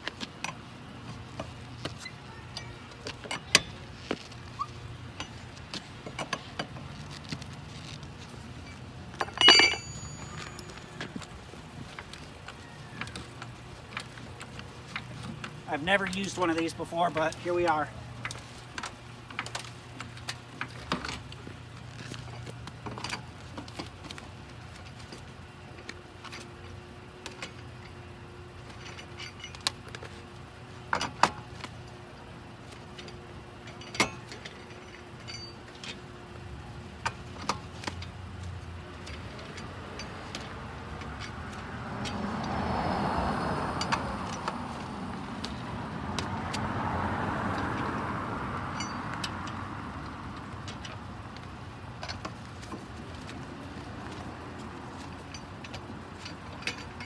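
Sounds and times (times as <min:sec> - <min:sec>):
metallic clicks and clanks: 0:08.6 - 0:30.1, 0:32.7 - 0:36.4, 0:43.7 - 0:46.6, 0:48.6 - 0:57.0.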